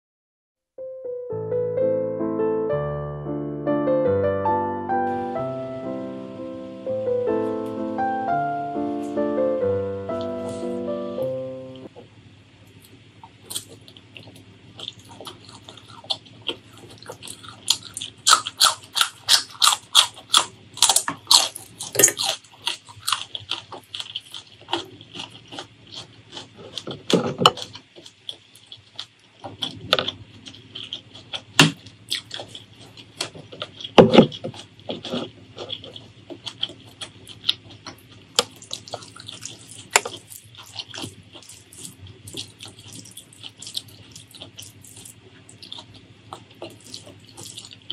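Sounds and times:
chewing and wet mouth sounds: 0:12.7 - 0:47.9.

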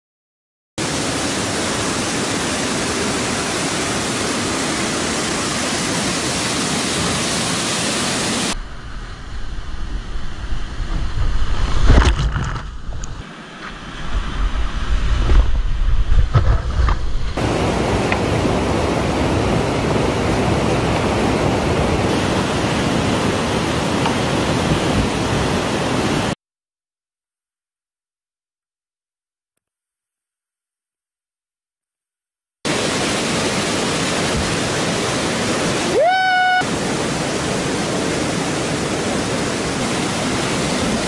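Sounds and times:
river rapids rushing: 0:00.8 - 0:11.7, 0:17.4 - 0:26.4, 0:32.7 - 0:41.0
waterfall rushing: 0:00.8 - 0:12.1, 0:17.1 - 0:26.4, 0:32.7 - 0:41.0
water splashing: 0:00.8 - 0:26.4, 0:32.7 - 0:41.0.

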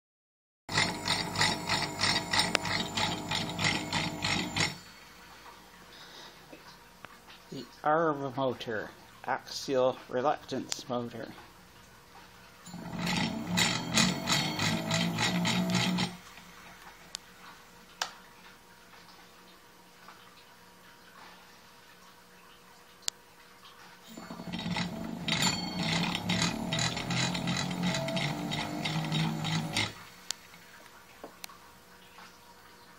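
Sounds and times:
electric motor humming: 0:00.7 - 0:04.8, 0:12.7 - 0:16.3, 0:24.1 - 0:30.0
rhythmic mechanical pulsing: 0:00.7 - 0:05.0, 0:12.7 - 0:16.4, 0:24.1 - 0:30.1.

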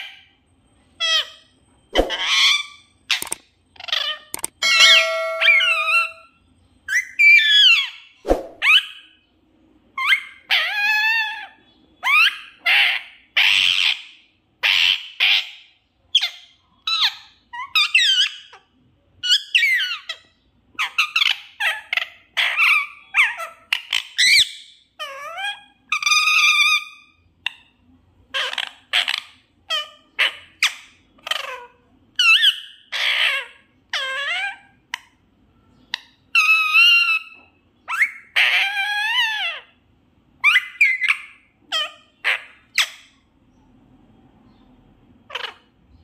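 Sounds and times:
parakeet squawking and whistling: 0:01.0 - 0:09.3, 0:09.9 - 0:43.3, 0:45.2 - 0:46.0.

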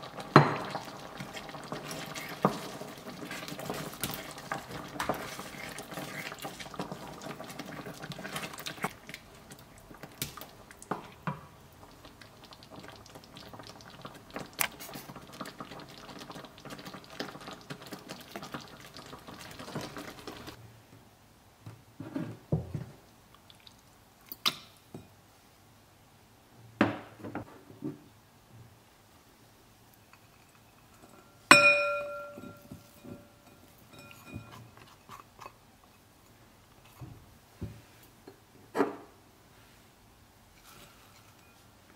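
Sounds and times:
spoon stirring thick sauce: 0:00.6 - 0:11.1, 0:33.7 - 0:36.0.

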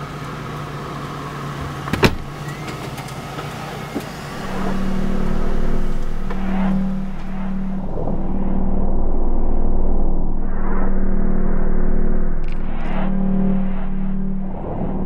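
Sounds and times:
car door slamming: 0:01.6 - 0:04.6
steady low drone: 0:04.1 - 0:15.0.

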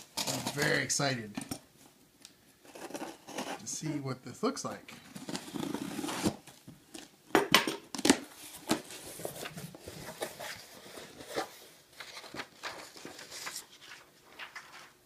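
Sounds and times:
cardboard and paper rustling: 0:08.3 - 0:15.0.

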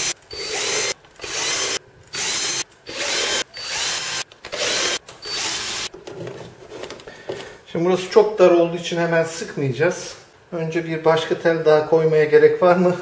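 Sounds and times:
cordless drill spinning: 0:00.0 - 0:05.9.

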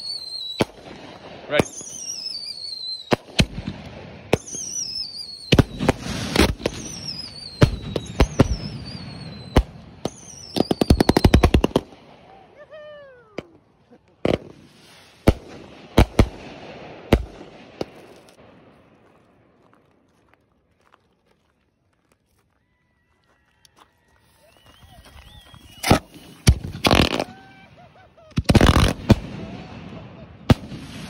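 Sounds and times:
falling firework whistles: 0:00.0 - 0:00.8, 0:01.7 - 0:03.4, 0:04.3 - 0:11.6, 0:24.2 - 0:29.2
loud firework reports: 0:00.6 - 0:03.7
rapid firework cracks: 0:03.0 - 0:12.4, 0:13.4 - 0:19.1, 0:25.6 - 0:27.6, 0:28.3 - 0:31.0.

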